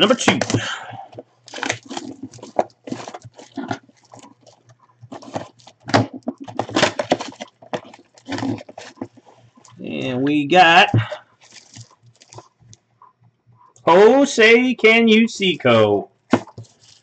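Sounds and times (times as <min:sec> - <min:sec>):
plastic shrink-wrap crinkling: 0:00.0 - 0:09.8, 0:11.4 - 0:12.8, 0:16.3 - 0:17.0.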